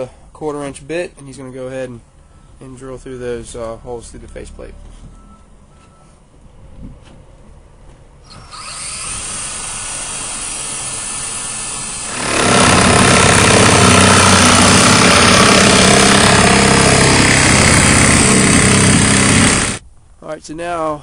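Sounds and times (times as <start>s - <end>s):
cordless drill boring through plastic: 8.3s - 19.8s
power grinder grinding fiberglass: 8.3s - 19.8s.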